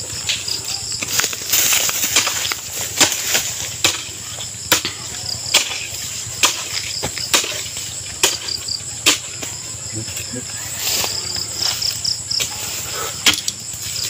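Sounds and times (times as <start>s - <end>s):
crickets chirping: 0.0s - 14.0s
digging tool chopping soil: 0.2s - 9.6s, 13.2s - 13.6s.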